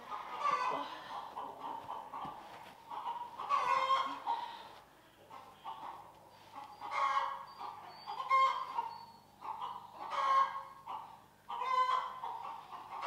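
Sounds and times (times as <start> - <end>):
loud drawn-out chicken calls: 0.0 - 2.2, 3.0 - 4.6, 6.6 - 13.0
chickens clucking and squawking: 0.0 - 13.0.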